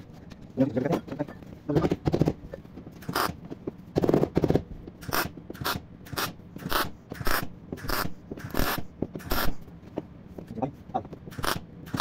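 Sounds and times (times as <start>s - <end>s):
crackling tack welds: 5.0s - 9.6s, 11.3s - 12.0s.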